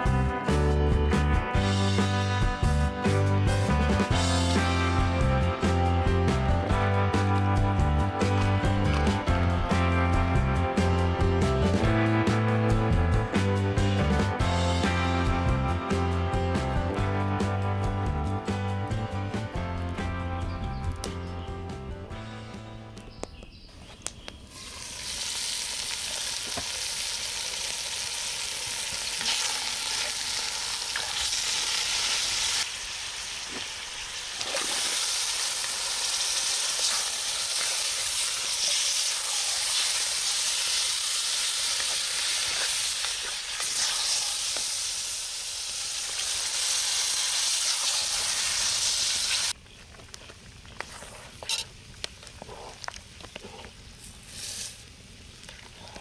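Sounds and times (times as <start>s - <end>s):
vegetables sizzling in a pot: 24.5s - 49.6s, 53.8s - 55.4s.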